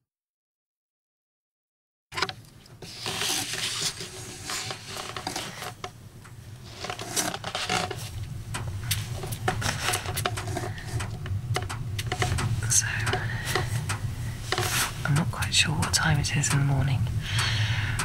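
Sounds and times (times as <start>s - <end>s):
camera handling clicks and scrapes: 2.2s - 5.9s, 6.6s - 8.2s, 8.9s - 12.5s, 14.4s - 15.0s
bedding rustling: 2.8s - 11.2s, 12.1s - 15.4s.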